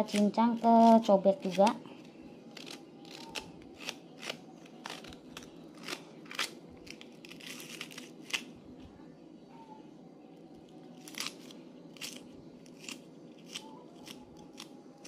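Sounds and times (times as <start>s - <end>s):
knife crunching through leek: 2.5s - 8.5s, 11.0s - 14.8s.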